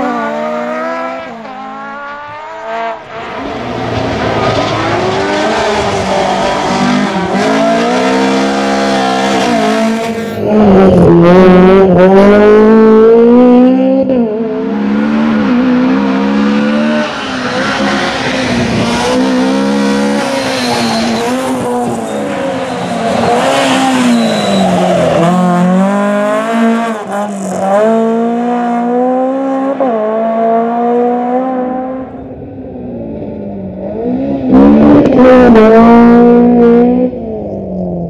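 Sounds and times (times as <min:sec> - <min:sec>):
rally car engine revving: 0:00.0 - 0:38.0
tyres squealing: 0:19.0 - 0:25.5.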